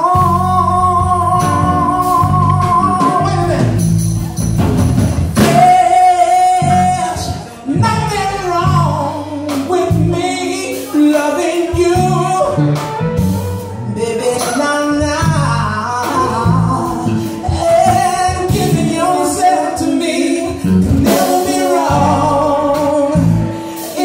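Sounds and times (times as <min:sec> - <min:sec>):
man singing: 0:00.0 - 0:04.0, 0:05.4 - 0:24.0
rock band playing: 0:00.0 - 0:24.0.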